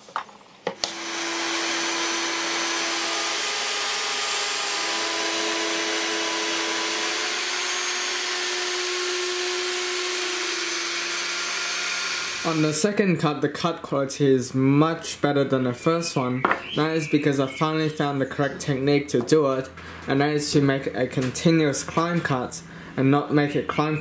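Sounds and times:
wood router cutting: 0.8s - 12.8s.

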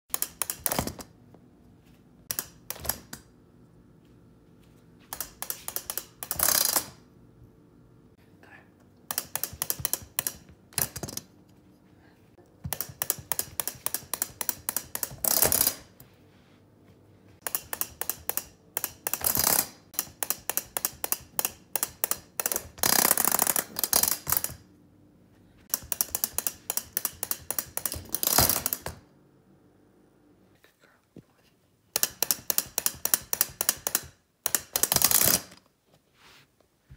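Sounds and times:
toy chicken mechanism clicking: 0.1s - 0.9s, 2.3s - 3.2s, 5.1s - 7.0s, 9.1s - 11.0s, 12.7s - 15.8s, 17.4s - 24.6s, 25.7s - 28.9s, 31.9s - 35.6s.

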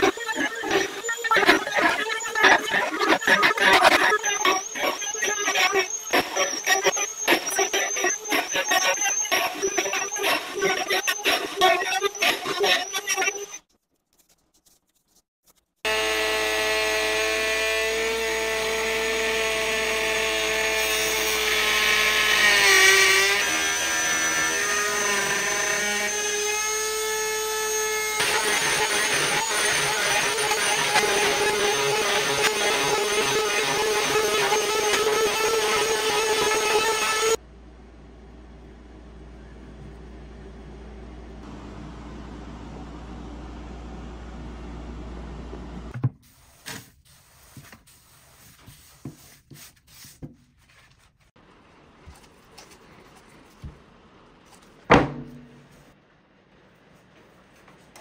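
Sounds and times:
trim router motor whining: 0.0s - 13.6s, 15.9s - 37.4s.

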